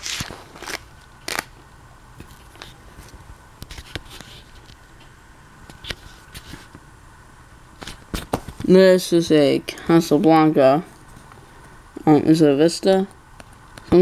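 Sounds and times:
plastic binder pages rustling: 0.0 - 1.5.

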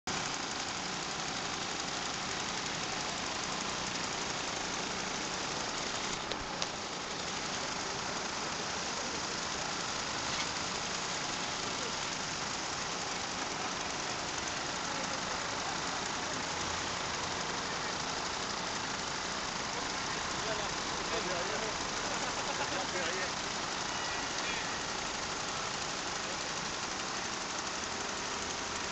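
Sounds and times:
moped engines droning: 0.1 - 28.9.

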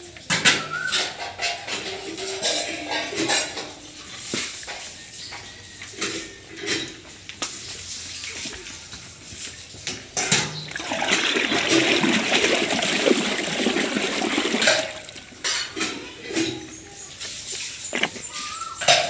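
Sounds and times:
cow sloshing water in trough: 7.6 - 19.0.

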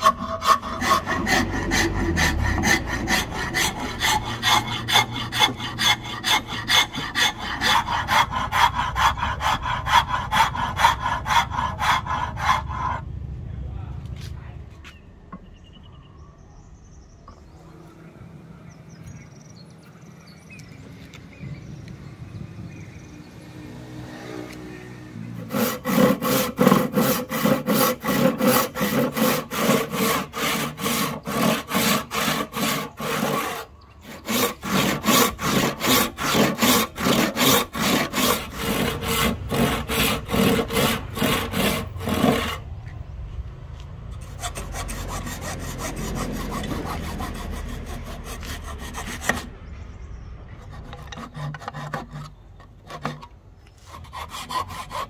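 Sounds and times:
hand saw cutting wood: 0.0 - 13.0, 25.4 - 42.7, 44.2 - 49.5, 50.6 - 55.0.

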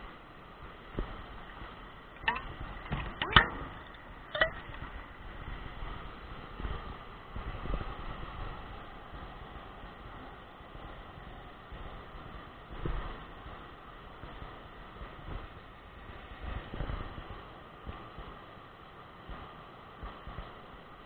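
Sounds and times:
water splashing: 1.5 - 5.2
water sloshing: 2.2 - 5.1.

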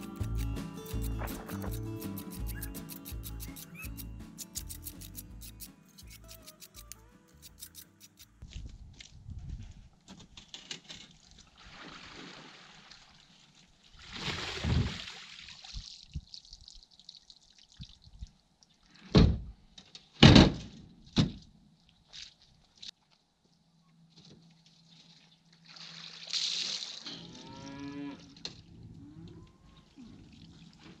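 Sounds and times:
water pouring out: 11.6 - 13.2, 14.0 - 18.0, 25.6 - 27.1.

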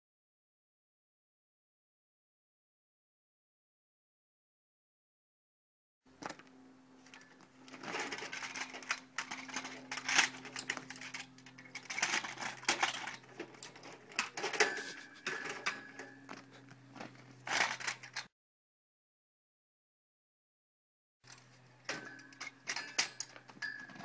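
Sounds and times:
kick scooters rattling against metal rack: 6.2 - 18.3, 21.3 - 24.0.

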